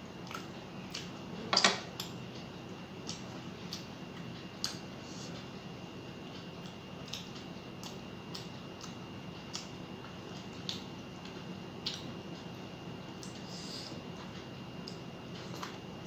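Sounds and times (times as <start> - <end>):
wet chewing and squishing: 0.2 - 1.2, 6.3 - 13.5.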